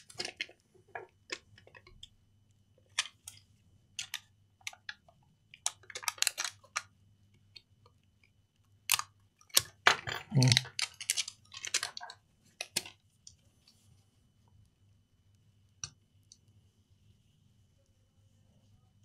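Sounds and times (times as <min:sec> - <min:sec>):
faint low hum: 0:00.0 - 0:19.0
plastic clicks and scrapes: 0:10.5 - 0:13.0.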